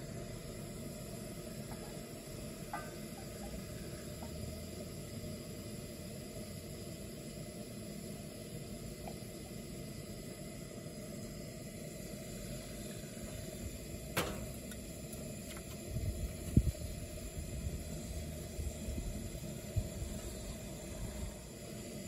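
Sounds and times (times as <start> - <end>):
low thumps of pan: 14.2 - 14.7.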